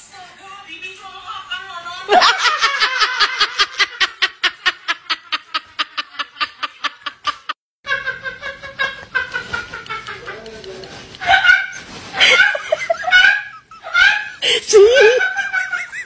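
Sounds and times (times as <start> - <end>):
person laughing hard: 12.1 - 16.0.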